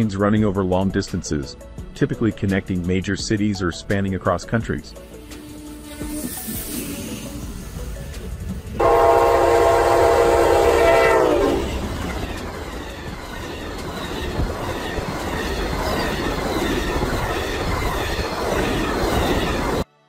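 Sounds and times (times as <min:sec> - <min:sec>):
locomotive horn blaring: 0:08.8 - 0:11.9.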